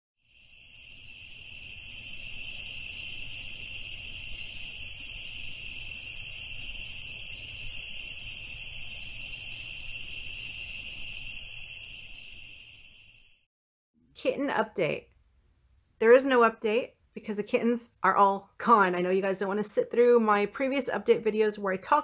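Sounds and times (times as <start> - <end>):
crickets chirring: 0.2 - 13.5.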